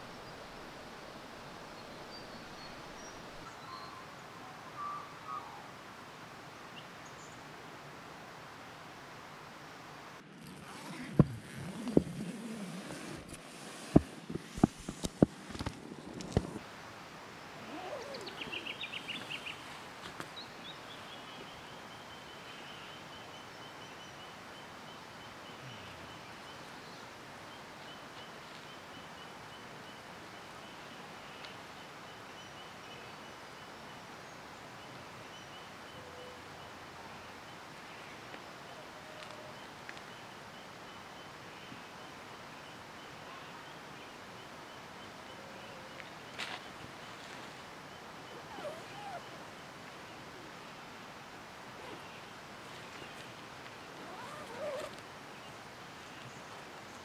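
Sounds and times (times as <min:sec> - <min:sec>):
background hiss: 0:00.0 - 0:57.0
birds calling: 0:17.5 - 0:21.8, 0:42.7 - 0:50.7, 0:51.7 - 0:57.0.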